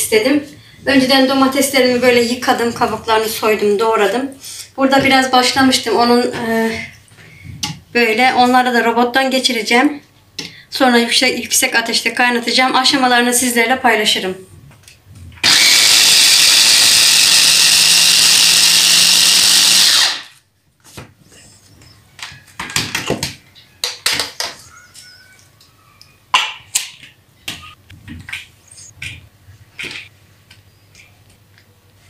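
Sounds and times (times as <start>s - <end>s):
stick blender motor whirring: 15.4s - 20.4s.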